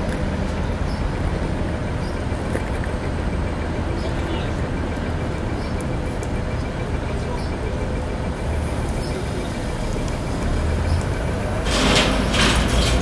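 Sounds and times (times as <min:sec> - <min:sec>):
crane diesel engine rumbling: 0:00.0 - 0:13.0
loud burst of noise: 0:11.6 - 0:12.9.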